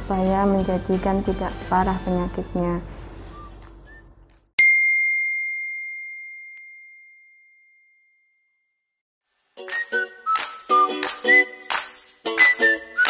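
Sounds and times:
upbeat music: 0:00.0 - 0:02.6, 0:09.6 - 0:13.0
bell ding: 0:04.6 - 0:08.6.

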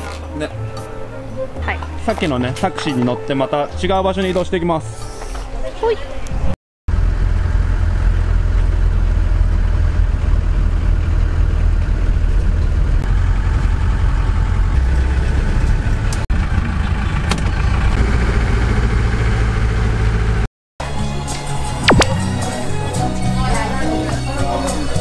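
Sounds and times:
car engine and road noise: 0:06.2 - 0:20.5.

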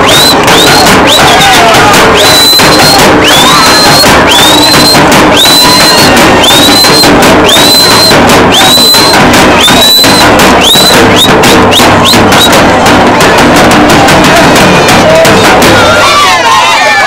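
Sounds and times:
bass drum beating: 0:00.0 - 0:16.3
shrill whistle blasts: 0:01.5 - 0:11.9.

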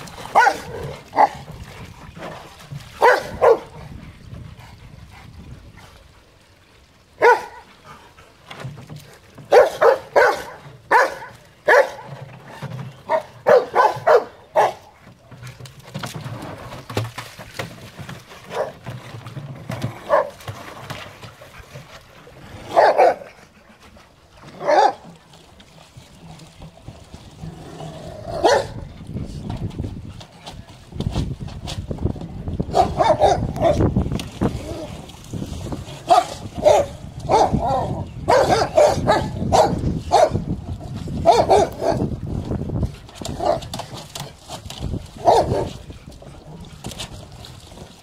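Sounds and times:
water splashing: 0:00.0 - 0:48.0
dogs barking: 0:00.3 - 0:01.4, 0:03.0 - 0:03.8, 0:07.2 - 0:07.6, 0:09.5 - 0:12.1, 0:13.1 - 0:14.9, 0:20.1 - 0:20.4, 0:22.7 - 0:23.3, 0:24.6 - 0:25.0, 0:28.4 - 0:28.8, 0:32.7 - 0:33.8, 0:36.1 - 0:40.4, 0:41.2 - 0:42.0, 0:45.2 - 0:45.7.

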